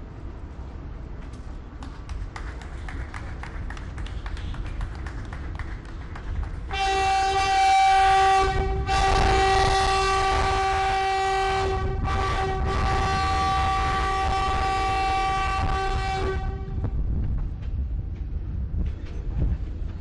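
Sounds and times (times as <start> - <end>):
train rumbling past: 0.0 - 20.0
locomotive air horn blasts: 6.7 - 16.8.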